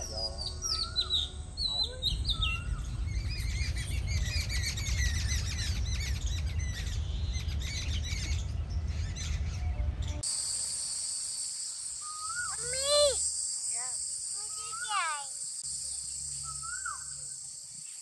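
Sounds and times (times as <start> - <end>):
low steady rumble: 0.0 - 10.3
small birds chirping: 0.0 - 18.0
insects droning: 10.2 - 18.0.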